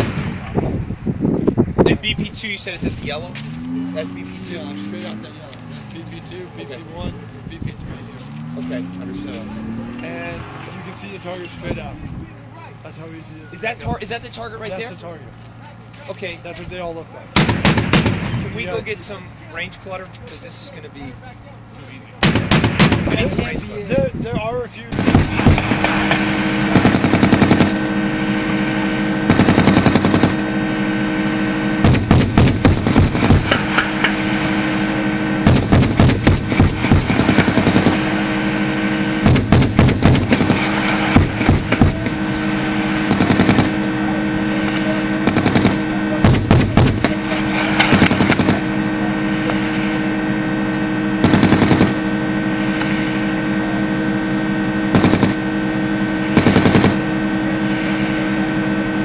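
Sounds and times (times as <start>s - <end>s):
vehicle engine drone: 0.0s - 59.0s
gun firing short bursts: 17.4s - 18.4s, 22.2s - 23.4s, 24.9s - 27.9s, 29.2s - 30.5s, 31.8s - 34.0s, 35.4s - 38.2s, 39.2s - 42.2s, 43.0s - 43.9s, 45.2s - 48.8s, 51.2s - 52.0s, 54.9s - 55.5s, 56.3s - 57.1s.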